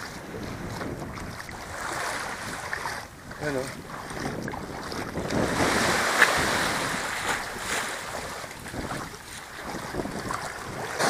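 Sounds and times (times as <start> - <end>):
sea surf washing: 0.0 - 11.0
wind buffeting microphone: 0.0 - 11.0.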